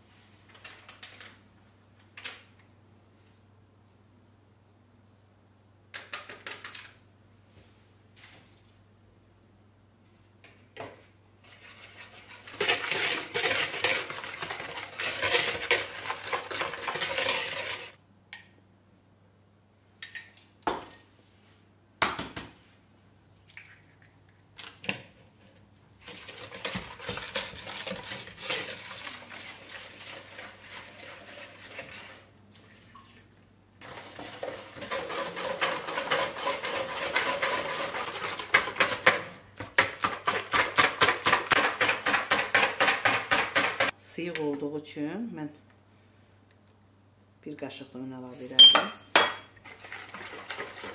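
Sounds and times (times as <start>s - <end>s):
whisk scraping and clicking in bowl: 11.4s - 18.0s, 26.0s - 32.2s, 34.2s - 39.2s.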